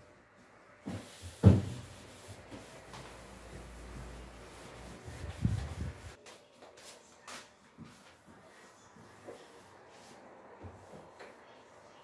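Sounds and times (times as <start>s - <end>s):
knocks and rubbing in refrigerator: 0.9s - 1.9s.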